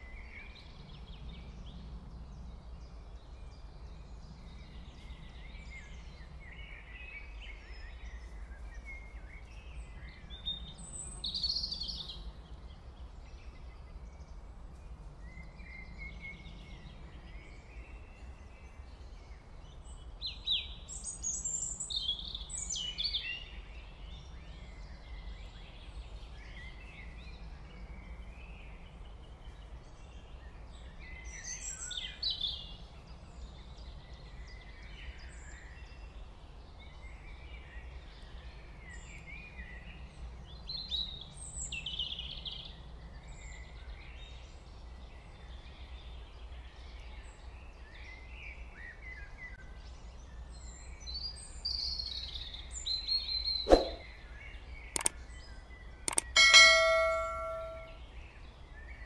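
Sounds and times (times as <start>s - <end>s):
birds chirping: 53.3s - 54.2s, 54.9s - 55.2s, 56.1s - 58.0s.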